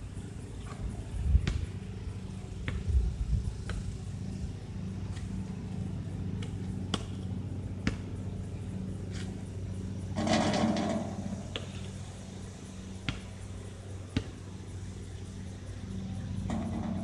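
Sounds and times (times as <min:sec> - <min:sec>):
steady low hum: 0:00.0 - 0:17.0
basketball bouncing: 0:07.8 - 0:08.1, 0:13.1 - 0:13.3.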